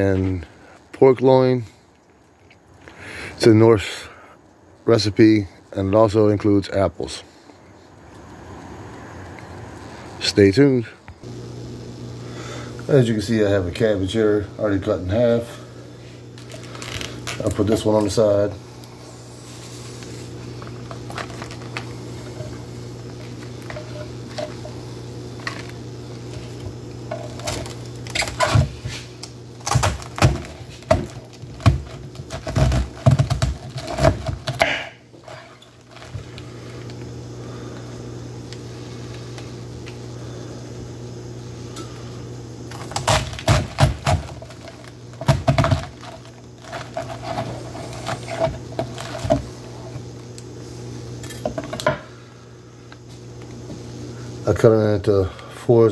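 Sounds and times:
knife crunching through cabbage: 26.4 - 36.2, 42.7 - 49.4.

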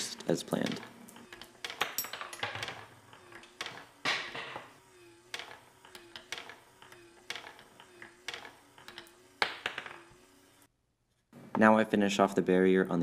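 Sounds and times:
steel marbles clicking on wood: 5.3 - 10.1.

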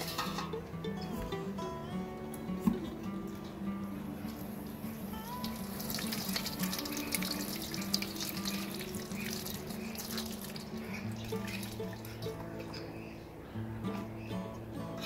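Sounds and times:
water splashing into steel basin: 5.2 - 12.4.

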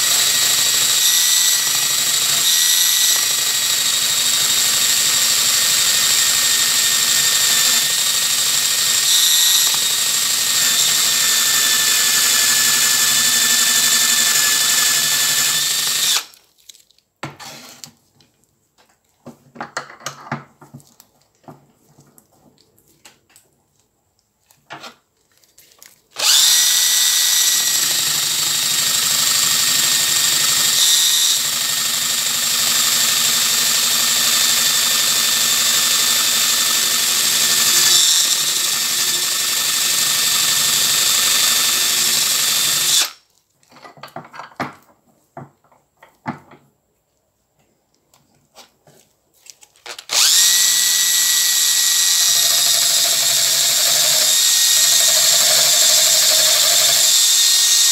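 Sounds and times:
drill wire wheel brushing rust: 50.1 - 57.9.

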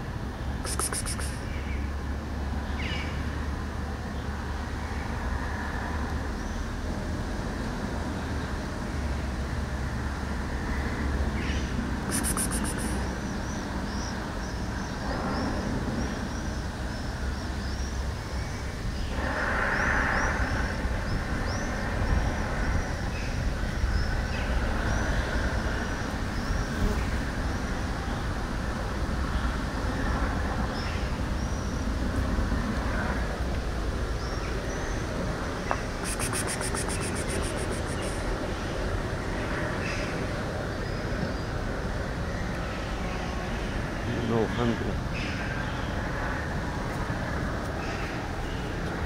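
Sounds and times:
small birds chirping: 0.6 - 1.9, 11.4 - 15.5, 34.2 - 38.4
short high rattles: 0.7 - 1.5, 35.9 - 38.2.

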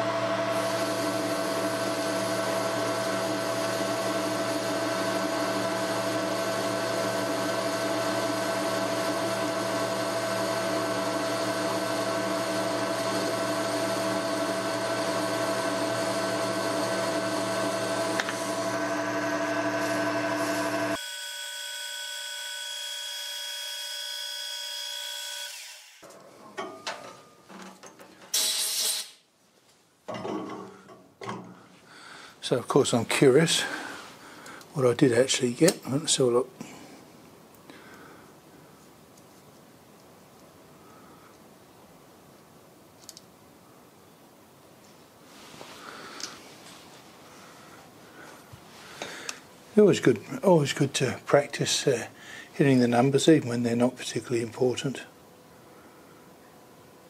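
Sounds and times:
lathe humming and whining: 0.0 - 26.0.

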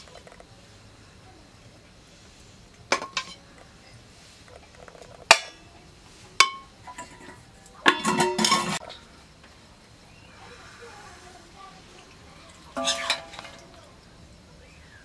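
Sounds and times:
metal spatula clinking on pot: 6.4 - 8.8, 12.8 - 13.7.

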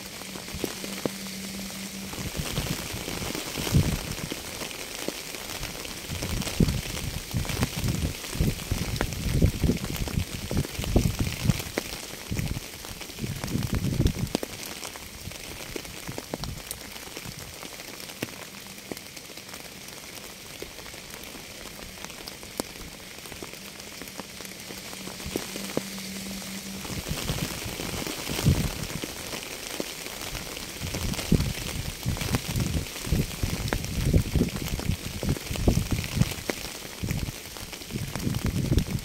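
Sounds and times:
low rumbling: 0.0 - 12.6, 20.7 - 29.5
steady rain falling: 0.0 - 39.0.

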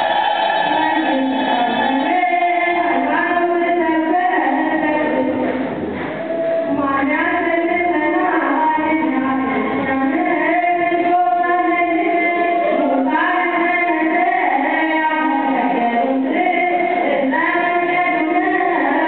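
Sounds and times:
women singing long gliding notes: 0.0 - 5.4.

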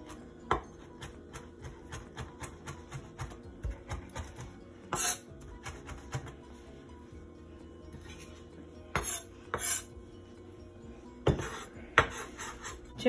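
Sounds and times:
knife chopping on wooden board: 11.2 - 12.5.

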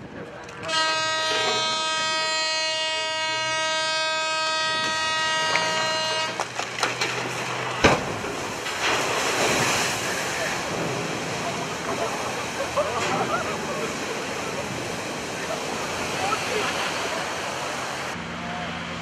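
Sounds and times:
horn blast: 0.6 - 6.4
hull splashing into water: 5.0 - 18.2.

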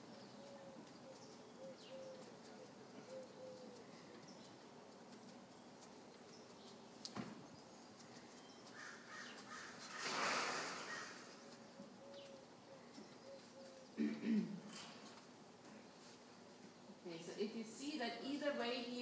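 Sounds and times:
dove cooing: 0.0 - 4.2, 10.8 - 14.3.

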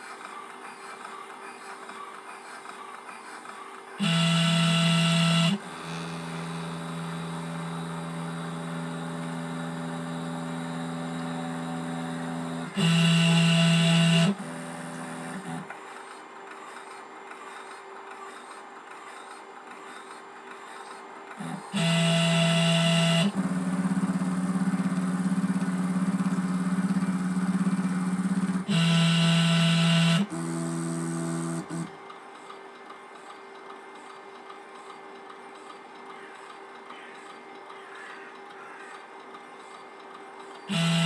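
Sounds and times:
machine motor whine: 0.0 - 32.0, 40.4 - 41.0
faint machine hum: 0.0 - 41.0.

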